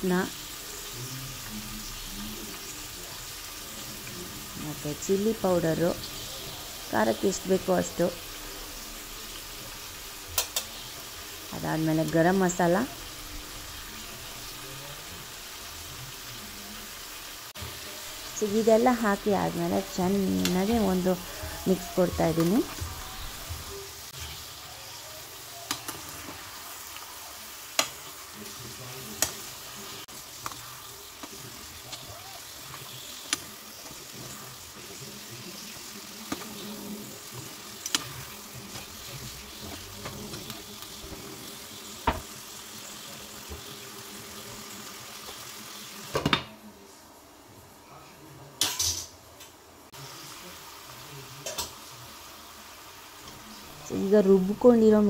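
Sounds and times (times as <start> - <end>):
chicken sizzling in oil: 0.0 - 55.0
spatula scraping pan: 35.6 - 42.2.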